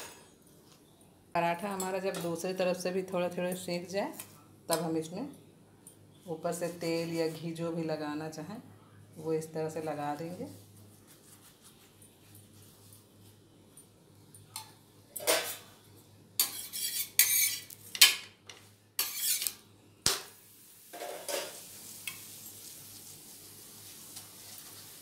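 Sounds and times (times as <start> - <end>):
faint sizzle of frying: 0.0 - 25.0
metal spatula scraping griddle: 16.4 - 17.8, 19.0 - 19.6.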